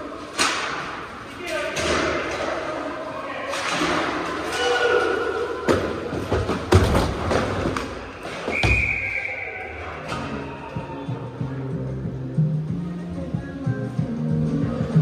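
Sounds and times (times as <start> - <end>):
hockey sticks and puck clacking: 0.1 - 8.9
long high whistle-like tone: 8.5 - 9.8.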